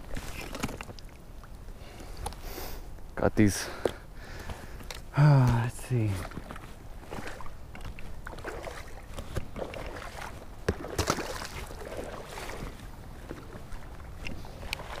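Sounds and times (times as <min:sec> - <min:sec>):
decoy splashing into pond: 0:07.2 - 0:13.5.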